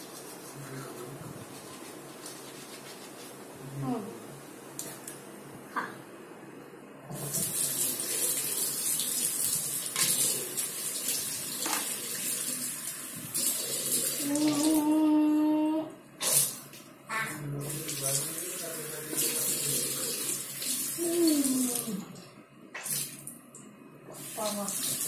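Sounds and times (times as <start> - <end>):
steady pitched hum: 0.0 - 24.7
tap water running into basin: 7.1 - 14.8, 17.6 - 25.0.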